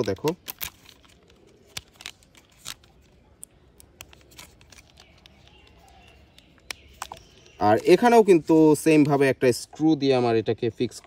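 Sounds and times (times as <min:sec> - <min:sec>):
plastic toy parts clicking and rubbing: 0:00.0 - 0:08.1.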